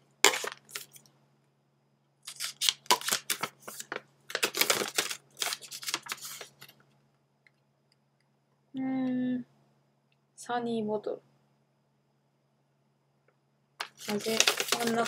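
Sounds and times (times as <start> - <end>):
plastic wrapper crinkling: 0.2 - 1.1, 2.2 - 6.8, 13.8 - 15.0.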